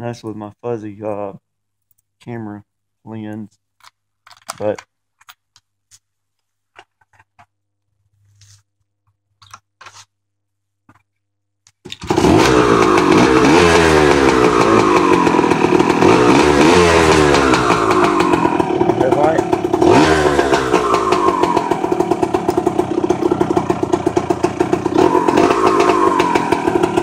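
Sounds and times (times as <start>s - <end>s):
two-stroke motorcycle engine revving: 12.0s - 27.0s.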